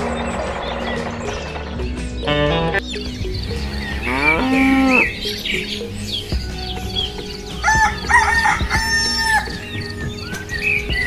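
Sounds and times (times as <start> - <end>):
background music: 0.0 - 11.0
cow mooing: 3.9 - 5.2
rooster crowing: 7.6 - 9.6.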